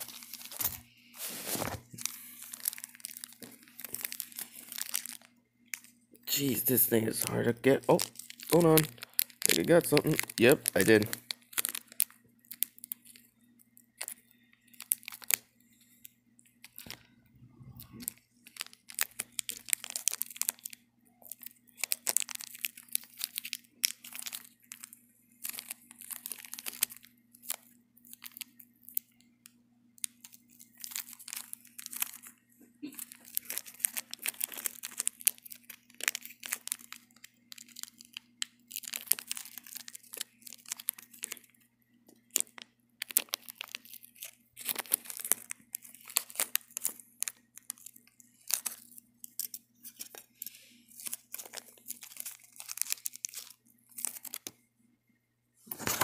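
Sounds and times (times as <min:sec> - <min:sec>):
packaging crinkling and tearing: 0:00.0 - 0:17.1, 0:17.7 - 0:54.6, 0:55.7 - 0:56.0.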